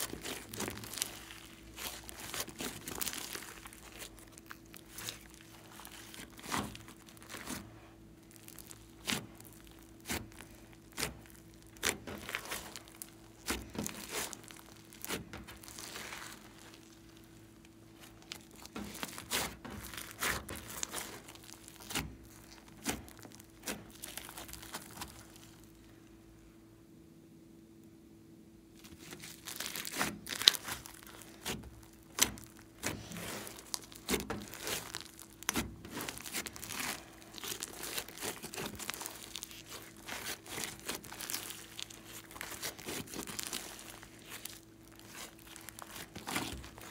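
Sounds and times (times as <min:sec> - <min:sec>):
slime crackling and popping: 0:00.0 - 0:25.9, 0:28.8 - 0:46.9
faint steady hum: 0:00.0 - 0:46.9.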